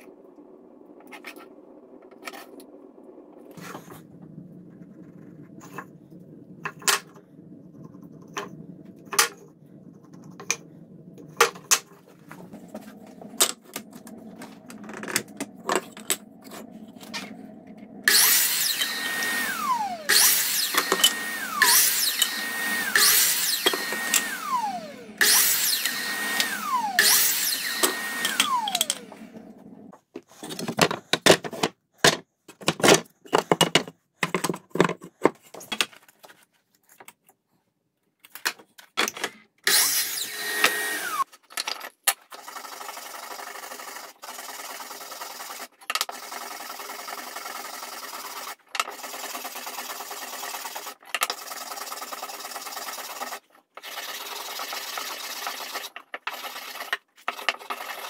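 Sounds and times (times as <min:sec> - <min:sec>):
miter saw cutting boards: 0:03.6 - 0:29.9, 0:39.7 - 0:41.3.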